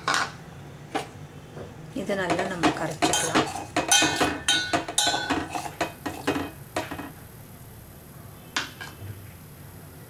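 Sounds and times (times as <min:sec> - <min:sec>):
metal spoon clinking and scraping pot: 0:02.3 - 0:07.1.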